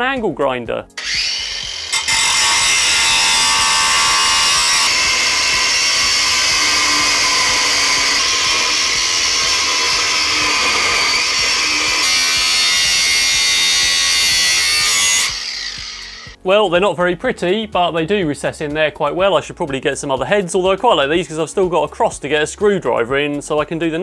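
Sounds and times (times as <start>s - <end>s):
angle grinder cutting steel: 0.9s - 16.4s.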